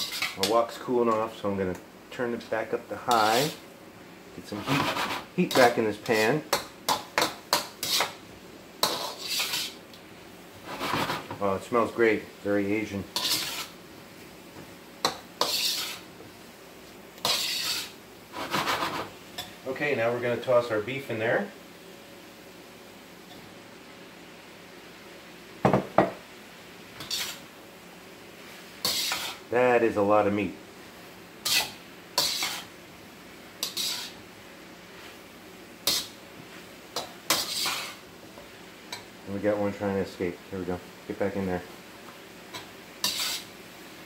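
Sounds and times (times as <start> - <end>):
spatula scraping wok: 0.0 - 0.9, 2.4 - 3.7, 4.4 - 9.9, 10.5 - 11.5, 12.8 - 14.3, 15.0 - 16.4, 17.2 - 19.6, 26.9 - 27.5, 28.3 - 29.6, 30.2 - 39.2, 41.7 - 44.0
pan sizzling: 0.0 - 44.0.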